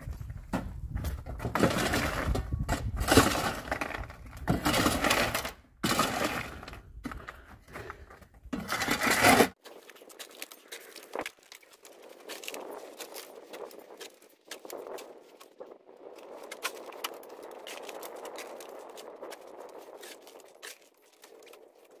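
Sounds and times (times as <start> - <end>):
shovel scooping gravel: 1.6 - 7.3, 8.6 - 15.0.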